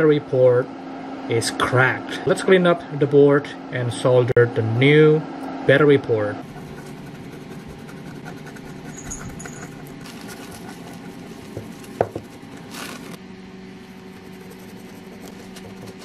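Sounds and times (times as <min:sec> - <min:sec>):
bench equipment humming: 0:04.9 - 0:16.0.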